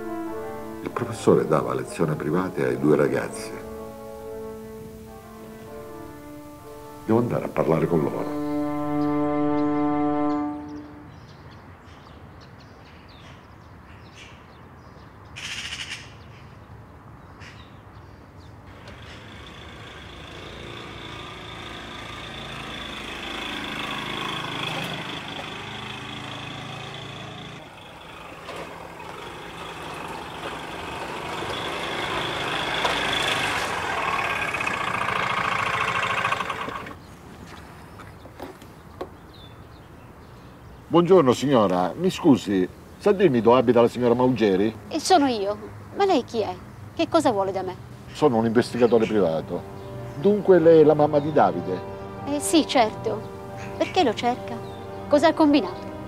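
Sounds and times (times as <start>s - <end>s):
motor scooter engine: 18.7s - 37.1s.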